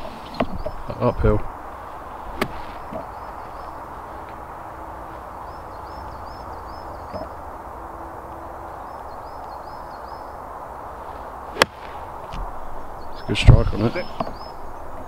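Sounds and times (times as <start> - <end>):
faint low drawn-out bird call: 0.0 - 1.5, 2.6 - 10.5, 12.6 - 15.0
birds chirping: 0.0 - 15.0
outdoor background noise: 0.0 - 15.0.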